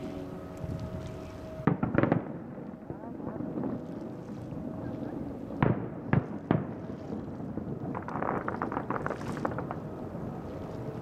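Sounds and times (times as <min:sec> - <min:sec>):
faint firework crackles: 0:05.6 - 0:09.8.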